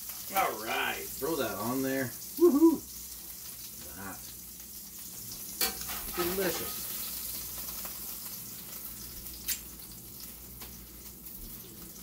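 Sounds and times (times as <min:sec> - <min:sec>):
food sizzling in skillet: 0:00.0 - 0:12.0.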